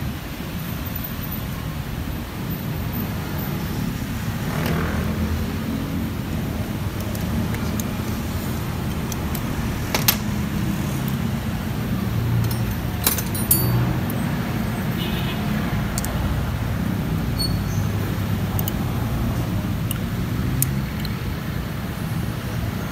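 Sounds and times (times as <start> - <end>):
metal tool clicks: 7.0 - 10.4, 12.3 - 14.3, 15.9 - 16.3, 18.5 - 18.9, 19.8 - 21.2.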